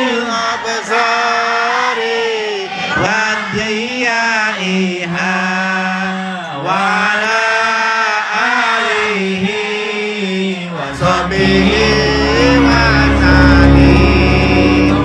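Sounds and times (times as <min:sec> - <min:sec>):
men singing devotional chant: 0:00.0 - 0:15.0
instrumental music with deep bass: 0:10.9 - 0:15.0.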